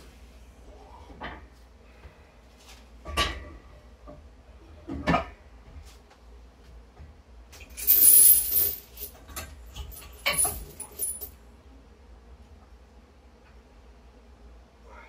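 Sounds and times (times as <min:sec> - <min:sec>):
steel chains rattling and clinking: 0:07.6 - 0:11.3.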